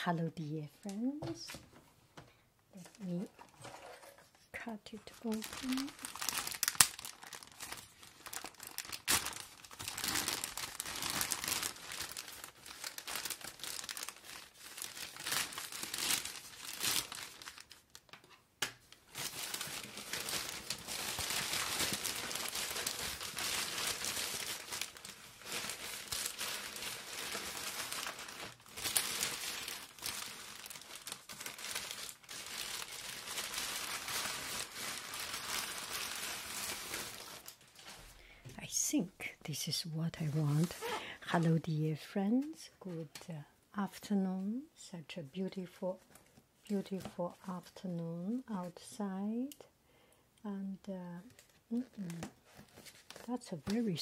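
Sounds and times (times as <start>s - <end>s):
plastic mailer bag crinkling: 5.0s - 18.3s, 19.0s - 38.0s.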